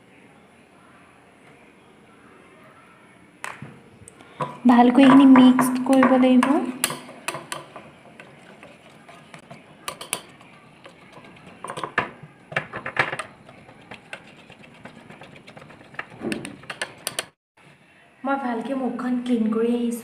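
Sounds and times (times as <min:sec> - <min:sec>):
metal spoon scraping ceramic bowl: 0:06.8 - 0:17.4.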